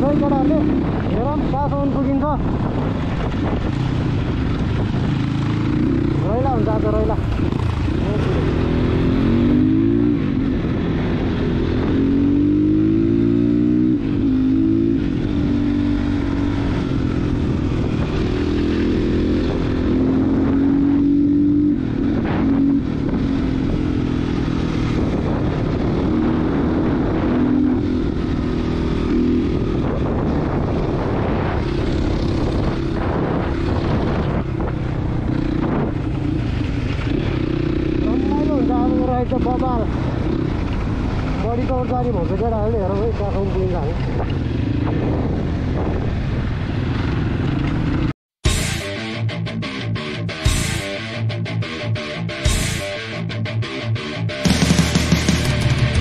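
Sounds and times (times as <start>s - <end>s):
wind noise on camera: 0.0s - 38.0s, 39.3s - 48.1s
dirt bike engine revving: 4.4s - 41.6s, 51.7s - 56.0s.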